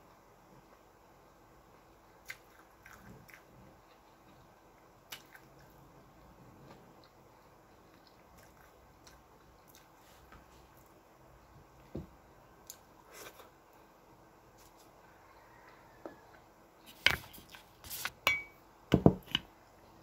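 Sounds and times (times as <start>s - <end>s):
soft chewing: 2.0s - 11.6s, 12.6s - 18.0s.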